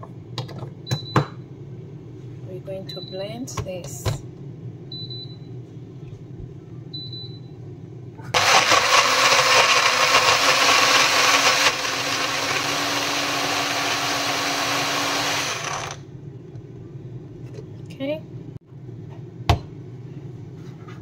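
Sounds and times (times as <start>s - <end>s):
blender motor running: 8.4s - 16.0s.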